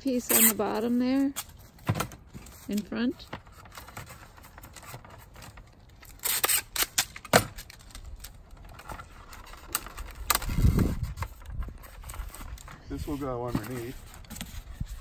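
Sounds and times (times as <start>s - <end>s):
duct tape ripping: 0.1s - 1.6s, 3.6s - 12.7s.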